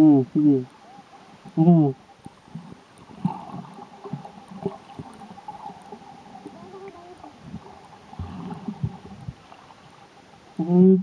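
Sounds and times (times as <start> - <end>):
underwater water sloshing and gurgling: 0.0 - 11.0
dull underwater knocks: 7.4 - 9.6.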